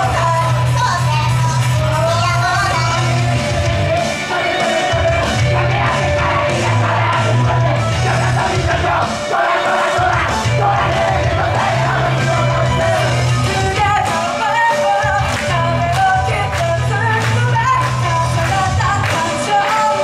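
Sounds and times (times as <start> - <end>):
rock backing track: 0.0 - 20.0
group singing into microphones: 3.0 - 20.0.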